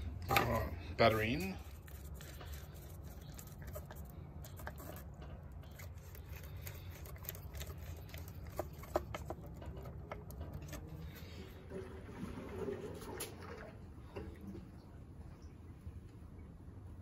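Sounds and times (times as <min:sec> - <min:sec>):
low steady hum: 0:00.0 - 0:17.0
clicks and scrapes of hands working: 0:01.7 - 0:11.2.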